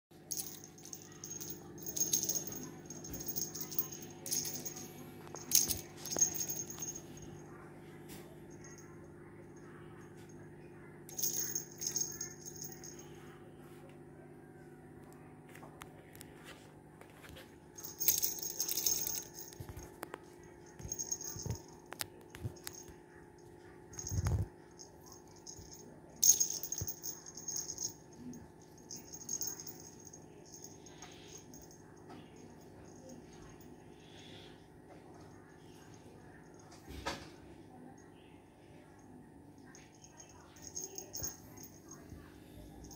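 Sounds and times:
low steady hum: 0:00.2 - 0:42.9
beaded toy rattling and jingling: 0:00.3 - 0:07.4, 0:11.1 - 0:13.1, 0:17.8 - 0:23.0, 0:23.9 - 0:33.7, 0:39.7 - 0:42.1.

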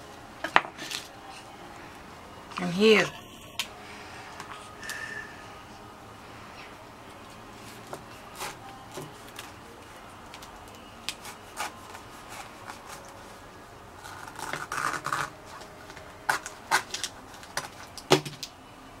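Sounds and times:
knife rasping through rind: 0:11.1 - 0:13.1
husk cracking: 0:14.0 - 0:18.6.

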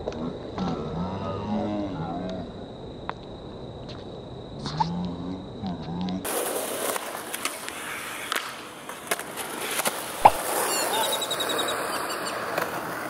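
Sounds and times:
skateboard wheels rolling on concrete: 0:00.0 - 0:13.0
skateboard clacks: 0:06.2 - 0:13.0.

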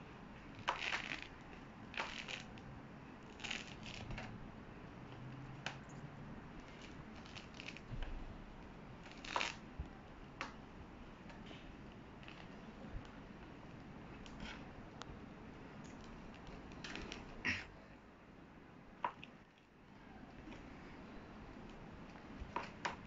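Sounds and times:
fruit rind tearing: 0:00.6 - 0:01.3, 0:01.9 - 0:02.6, 0:03.3 - 0:04.2, 0:06.6 - 0:07.8, 0:09.0 - 0:09.6.

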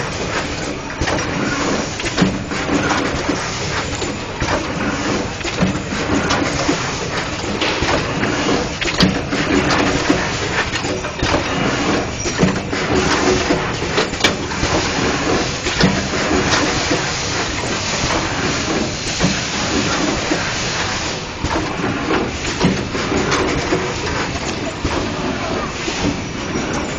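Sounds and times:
printing machine running: 0:00.0 - 0:26.9
irregular clicks and knocks: 0:00.2 - 0:20.5.

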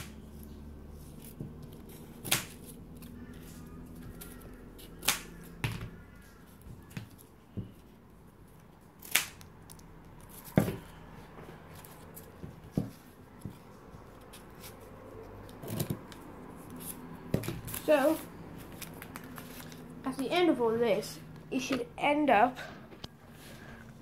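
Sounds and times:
scissors snipping cardboard: 0:04.0 - 0:06.0.

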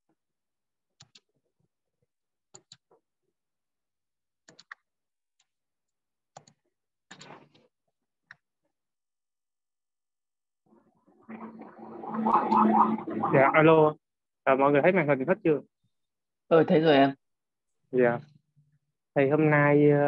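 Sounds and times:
computer mouse clicks: 0:01.0 - 0:01.3, 0:02.5 - 0:03.0, 0:04.4 - 0:05.5, 0:06.3 - 0:07.7.

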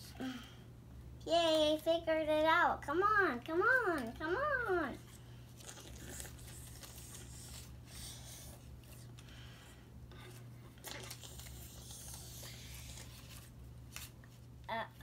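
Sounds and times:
low steady hum: 0:00.0 - 0:15.0
paper rustling on a table: 0:05.0 - 0:09.2, 0:10.2 - 0:14.5.

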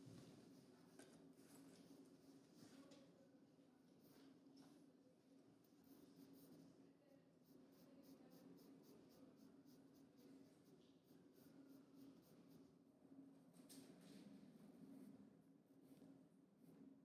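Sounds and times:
charcoal scratching on paper: 0:00.4 - 0:03.1, 0:05.6 - 0:12.8.

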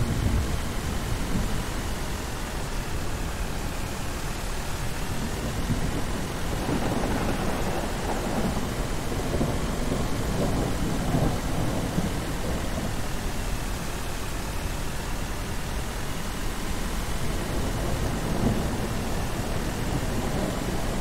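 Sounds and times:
rolling thunder: 0:00.0 - 0:01.7, 0:05.0 - 0:13.4, 0:17.3 - 0:21.0
rain hissing: 0:00.0 - 0:21.0.

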